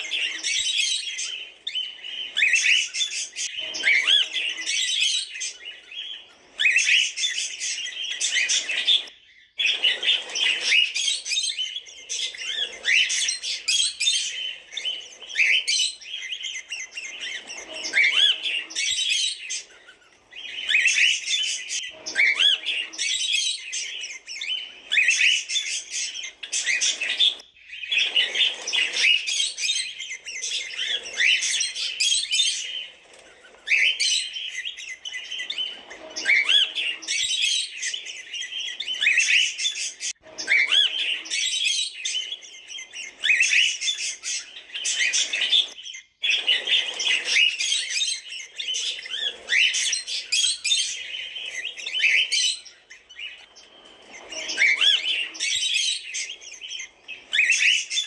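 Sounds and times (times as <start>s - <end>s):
cockatiels chirping: 0.0s - 58.0s.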